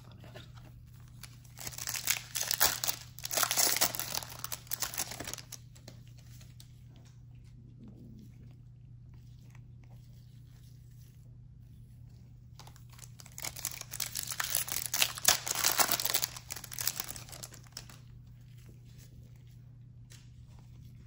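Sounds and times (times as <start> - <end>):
foil wrapper tearing and crinkling: 1.1 - 5.7, 12.6 - 18.1.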